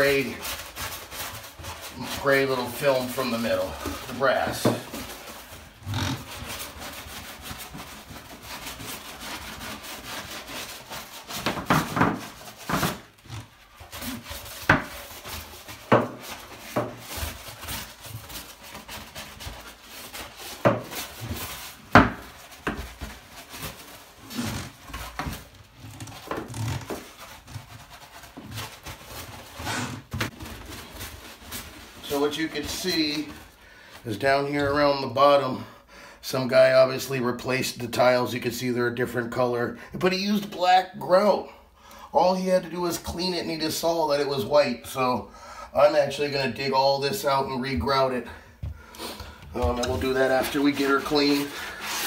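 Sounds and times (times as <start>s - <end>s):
brush scrubbing wet tile: 0.0s - 35.4s, 45.8s - 52.0s.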